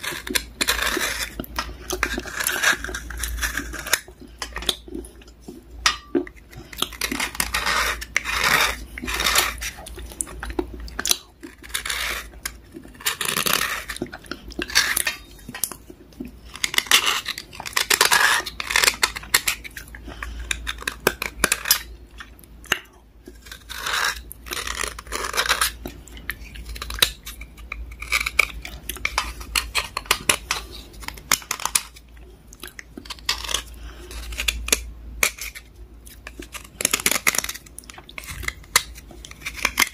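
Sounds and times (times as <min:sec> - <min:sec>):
metal blade scraping slate: 0:00.0 - 0:01.4, 0:05.8 - 0:10.2, 0:11.0 - 0:14.0, 0:16.6 - 0:19.6.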